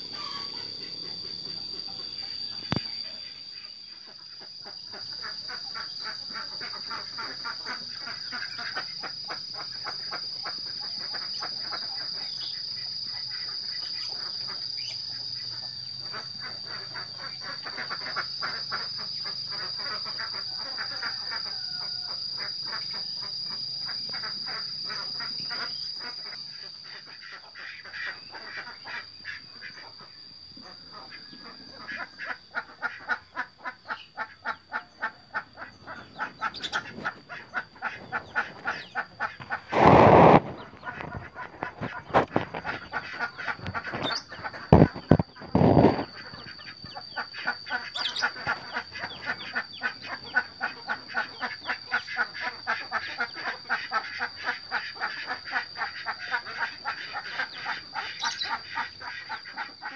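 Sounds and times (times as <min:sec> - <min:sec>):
high-pitched insect drone: 0:00.0 - 0:59.9
ducks quacking: 0:04.0 - 0:12.5, 0:22.7 - 0:59.9.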